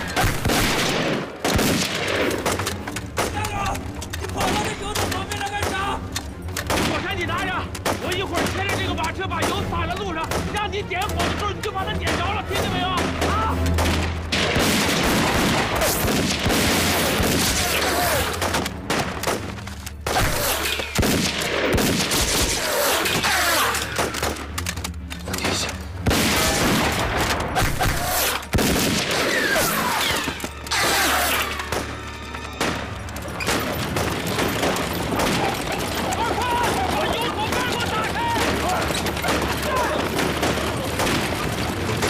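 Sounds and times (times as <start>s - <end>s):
rapid rifle gunfire: 0.0s - 3.6s, 12.1s - 24.5s, 26.0s - 31.9s, 33.4s - 42.0s.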